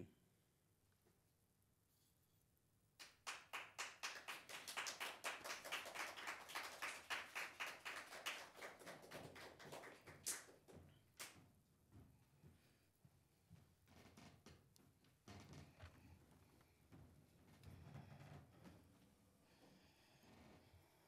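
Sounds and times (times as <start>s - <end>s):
small group applauding: 3.0s - 11.4s.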